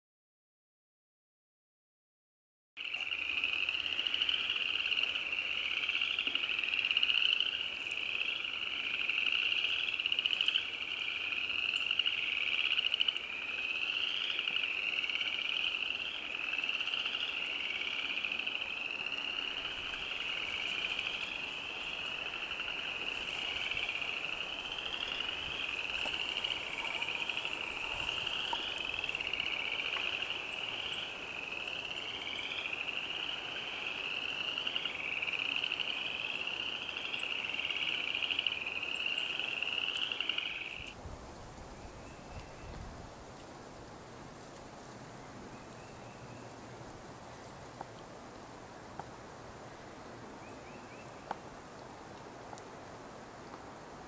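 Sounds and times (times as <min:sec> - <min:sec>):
frogs calling in trills: 0:02.8 - 0:41.0.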